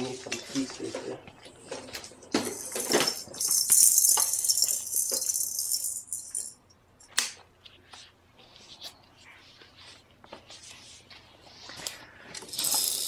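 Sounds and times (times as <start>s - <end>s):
small hard pieces rattling: 2.3s - 6.5s, 12.4s - 13.0s.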